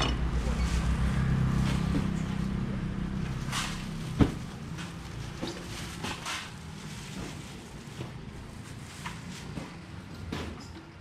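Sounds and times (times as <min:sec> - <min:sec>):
vehicle engine rumble: 0:00.0 - 0:10.2.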